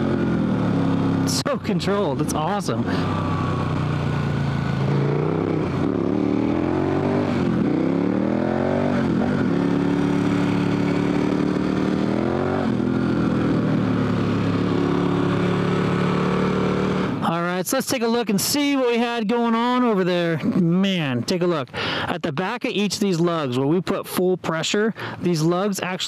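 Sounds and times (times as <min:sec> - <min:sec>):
motorcycle engine accelerating: 0:00.0 - 0:17.2.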